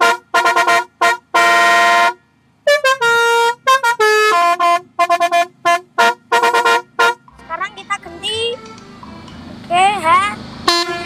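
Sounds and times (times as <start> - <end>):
musical air horn melody: 0.0 - 7.3, 10.6 - 11.0.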